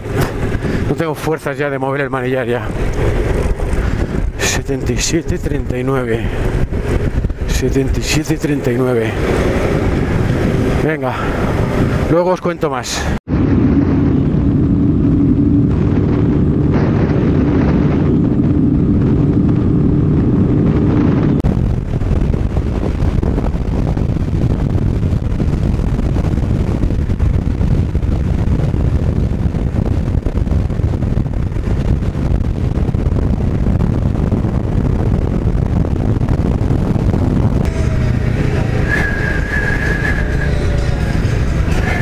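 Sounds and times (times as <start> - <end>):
wind rushing over microphone: 0.0 - 42.0
off-road motorcycle engine running: 13.7 - 42.0.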